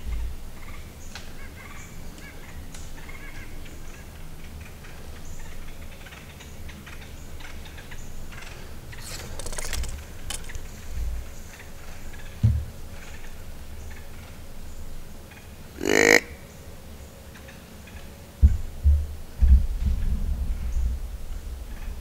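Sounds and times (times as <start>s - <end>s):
rustling in dry leaves: 8.9s - 11.4s.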